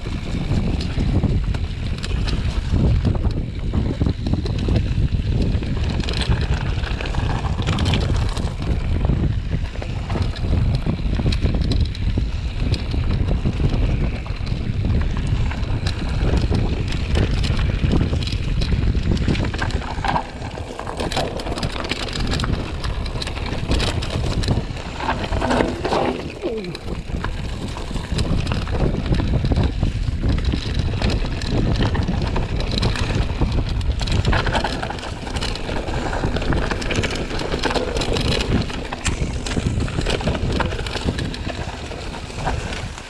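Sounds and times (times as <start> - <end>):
wind buffeting microphone: 0.0 - 43.0
clicks and rattles: 28.0 - 43.0.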